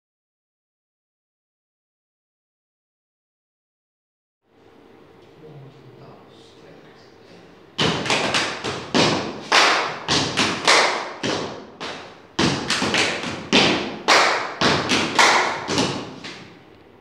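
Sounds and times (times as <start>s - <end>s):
stomps and body slaps: 7.8s - 16.5s.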